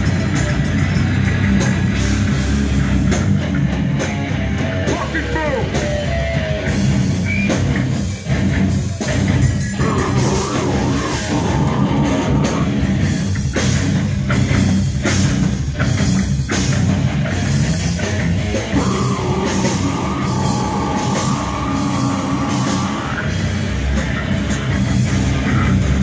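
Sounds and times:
distorted electric guitars: 0:00.0 - 0:26.0
driving drum kit: 0:00.0 - 0:26.0
person screaming vocals: 0:09.8 - 0:12.8, 0:18.7 - 0:23.3.

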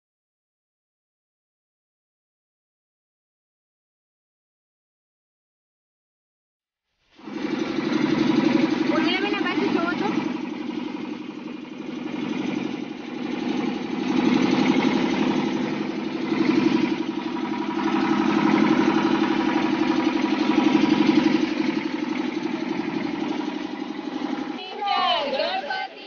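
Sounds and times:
motorboat engine running: 0:07.2 - 0:26.0.

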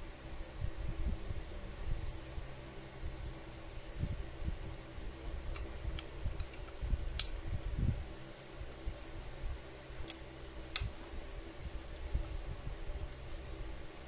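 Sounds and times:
faint steady hum: 0:00.0 - 0:14.0
sharp metallic click: 0:06.4 - 0:07.4.

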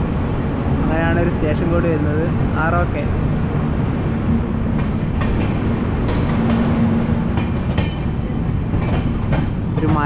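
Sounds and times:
train rumble and hum: 0:00.0 - 0:10.0
train wheels clicking over joints: 0:04.7 - 0:10.0.

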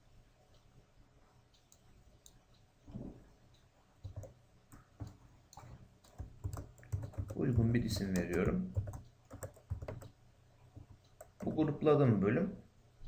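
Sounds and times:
computer mouse and keyboard clicks: 0:04.0 - 0:10.2.

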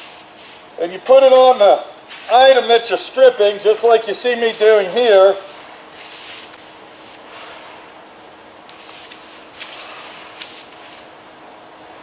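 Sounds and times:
paintbrush swishing: 0:00.0 - 0:02.9, 0:03.6 - 0:07.6, 0:08.7 - 0:11.1
faint steady hum: 0:00.0 - 0:12.0.

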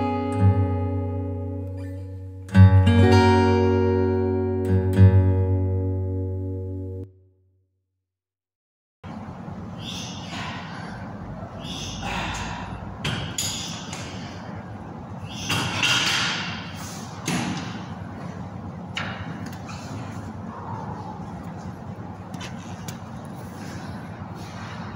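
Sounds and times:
steady low hum: 0:09.0 - 0:24.9
cable machine swishing strokes: 0:09.8 - 0:17.9.

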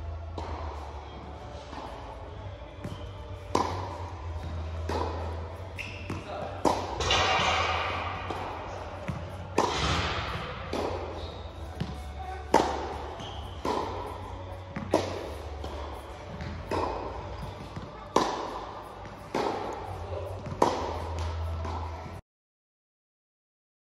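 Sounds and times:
tennis ball struck with rackets: 0:02.8 - 0:22.1.

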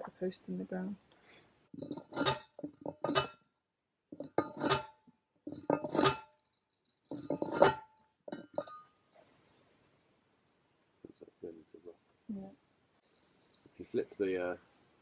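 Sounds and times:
metal post driver clanging: 0:01.8 - 0:03.3, 0:04.2 - 0:04.9, 0:05.5 - 0:06.2, 0:07.1 - 0:08.8.

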